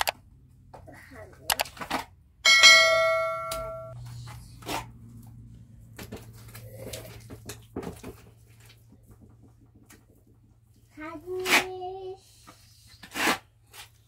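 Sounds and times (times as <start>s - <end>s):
bright bell chime: 2.5s - 4.0s
hands scraping wet mud plaster: 12.9s - 14.0s.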